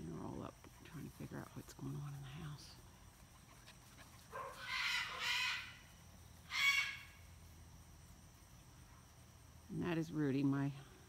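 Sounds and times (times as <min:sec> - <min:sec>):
macaw squawking: 0:04.6 - 0:07.2.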